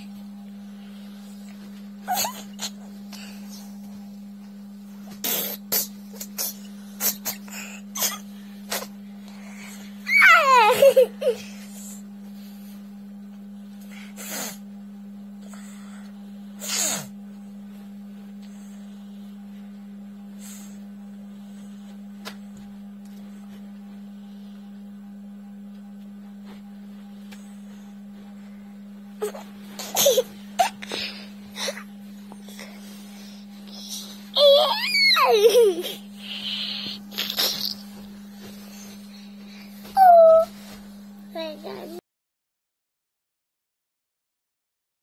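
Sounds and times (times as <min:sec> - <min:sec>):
steady low hum: 0:00.0 - 0:42.0
person squealing: 0:10.1 - 0:10.8, 0:34.4 - 0:35.6, 0:40.0 - 0:40.5.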